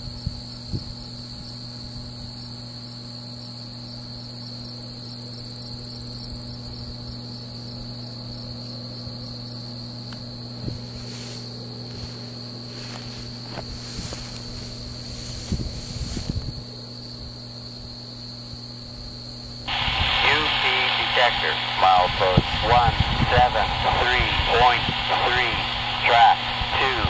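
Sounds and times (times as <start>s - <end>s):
crickets trilling: 0.0s - 27.0s
low steady drone: 19.7s - 27.0s.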